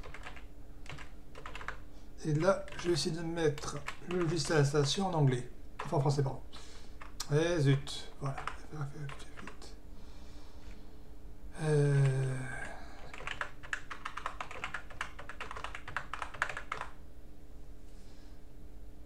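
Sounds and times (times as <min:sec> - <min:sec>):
man humming briefly: 0:11.5 - 0:13.0.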